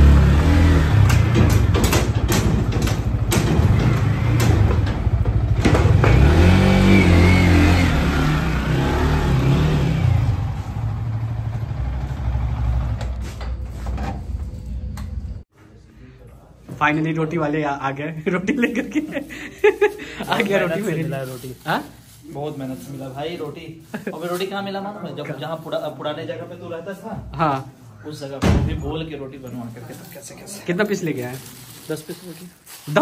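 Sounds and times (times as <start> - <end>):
motorcycle engine running: 0.0 - 13.6
sharp clicks and knocks: 1.0 - 6.4.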